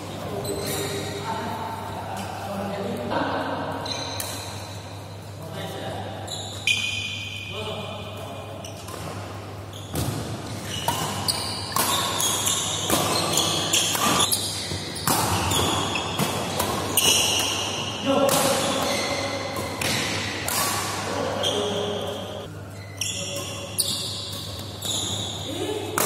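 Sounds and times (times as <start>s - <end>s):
shoe squeaks on court: 0.4s - 1.2s, 3.8s - 4.5s, 6.2s - 7.4s, 9.7s - 16.2s, 18.5s - 19.8s, 21.4s - 25.5s
racket hitting shuttlecock: 9.9s - 21.2s.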